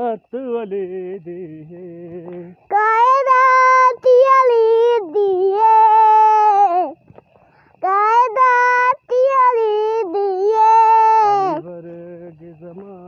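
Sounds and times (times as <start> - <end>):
child singing long notes: 2.6 - 7.0, 7.8 - 11.8.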